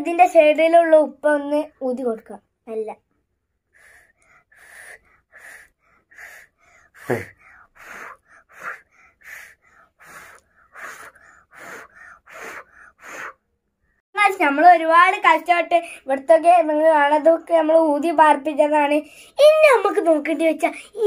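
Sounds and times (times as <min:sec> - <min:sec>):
child blowing puffs of breath: 0:03.6 - 0:13.5.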